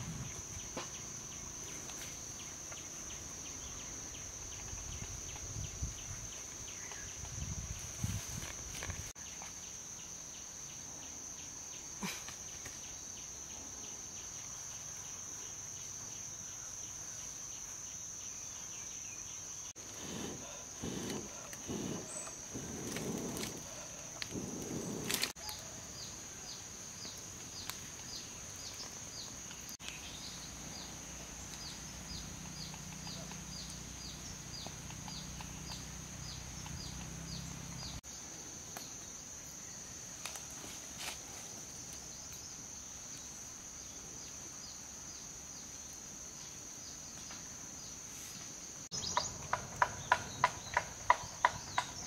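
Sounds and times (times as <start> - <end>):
crickets droning: 0.0 - 52.0
breath blown into fire: 19.8 - 25.3.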